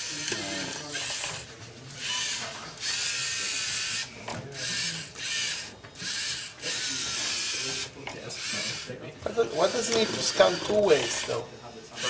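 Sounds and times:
robot servo motors whirring: 0.0 - 11.4.

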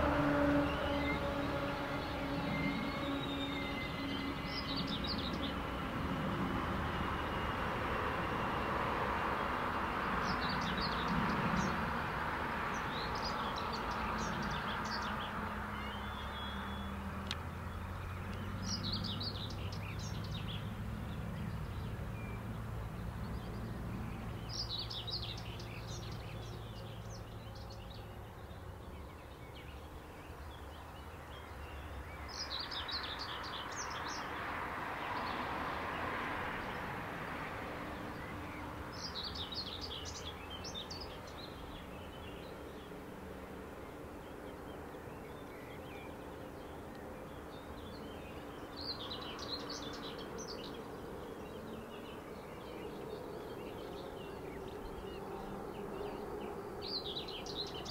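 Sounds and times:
songbird chirping: 0.0 - 7.4, 8.0 - 57.9.

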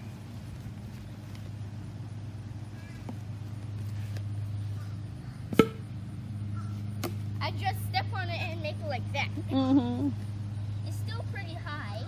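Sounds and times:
steady low hum: 0.0 - 12.0
stomp rocket launching pop: 5.5 - 5.9.

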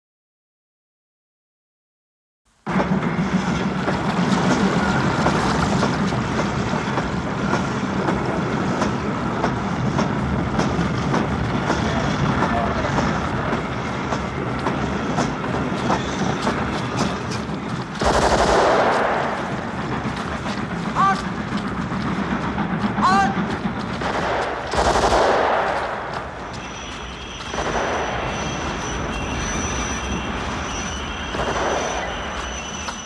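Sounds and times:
loud burst of noise: 2.6 - 33.0
train rumbling: 2.6 - 33.0
gunshots cracking: 17.9 - 20.2, 23.8 - 26.8, 27.4 - 28.8, 31.3 - 32.4.

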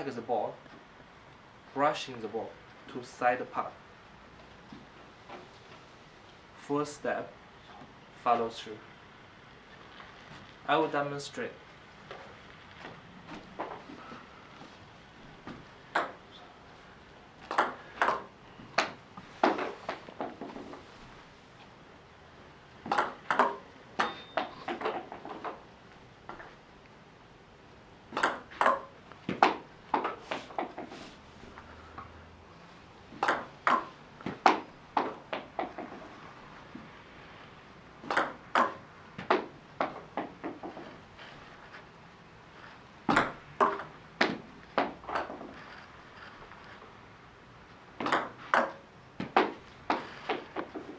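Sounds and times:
ball bouncing lightly: 15.4 - 16.2, 17.4 - 20.8, 22.8 - 25.6, 28.1 - 30.9, 33.1 - 36.1, 38.0 - 40.9, 43.1 - 45.4, 48.0 - 50.9
table tennis ball clicking: 28.2 - 30.8, 33.2 - 36.0, 38.1 - 40.7.

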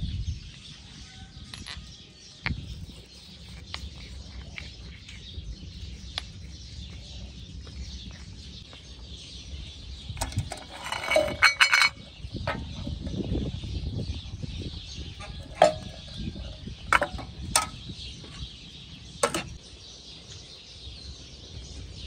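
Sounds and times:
stone pestle grinding in mortar: 10.2 - 13.2, 15.2 - 17.8.

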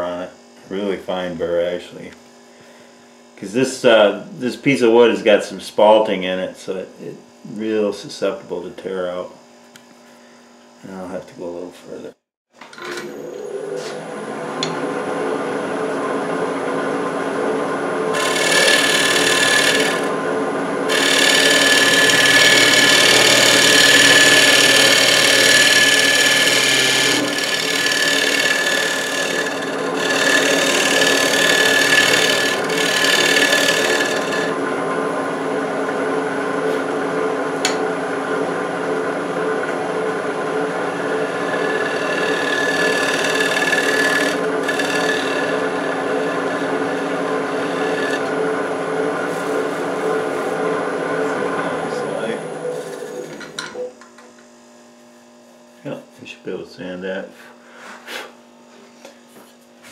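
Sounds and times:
lathe motor humming: 13.0 - 53.6
chisel scraping spinning wood: 18.1 - 20.2, 20.9 - 34.8, 39.6 - 53.6.

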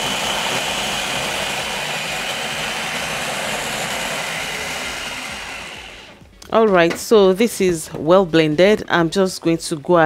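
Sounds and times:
electric blender running: 0.0 - 6.3.

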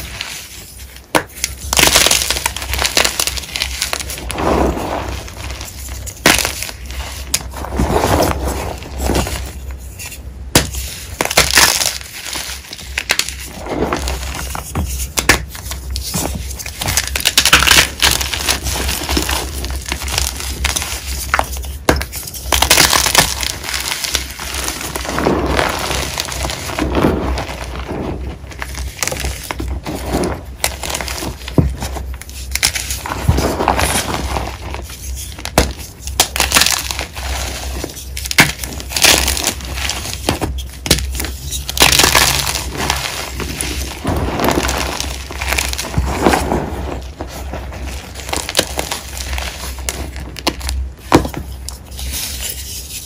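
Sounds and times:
chalk crunching by hand: 0.0 - 50.7.

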